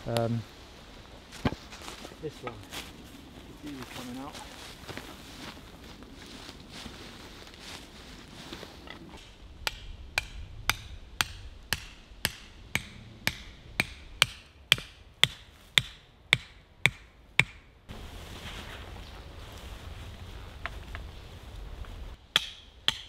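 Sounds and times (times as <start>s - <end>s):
hammering tent peg into ground: 9.6s - 17.7s, 22.3s - 23.0s.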